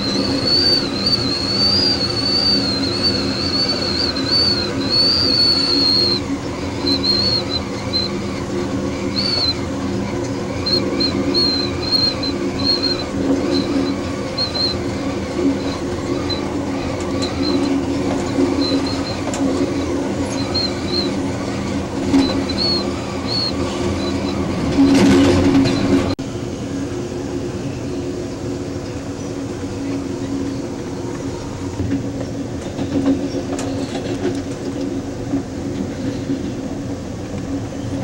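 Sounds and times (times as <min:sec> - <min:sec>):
wheel squeal: 0:00.0 - 0:26.2
train rolling rumble: 0:00.0 - 0:38.0.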